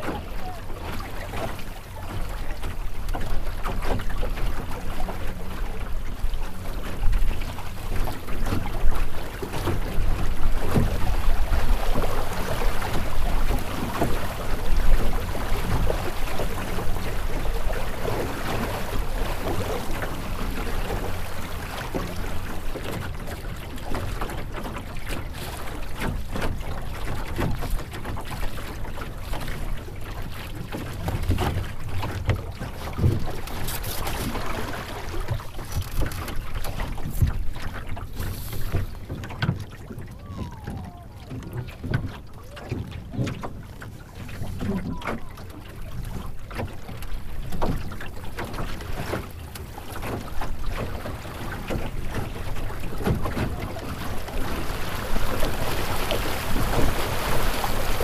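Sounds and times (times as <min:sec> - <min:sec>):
water slapping against hull: 0:00.0 - 0:58.0.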